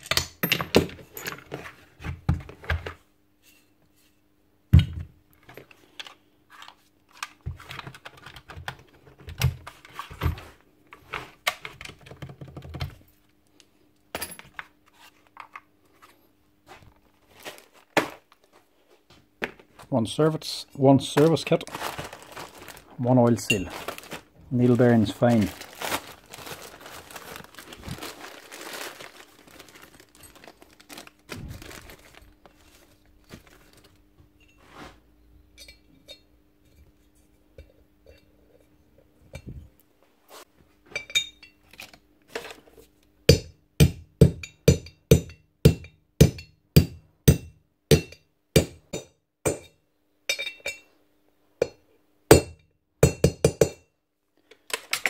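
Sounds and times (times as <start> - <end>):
plastic bag crinkling: 21.3 - 34.0.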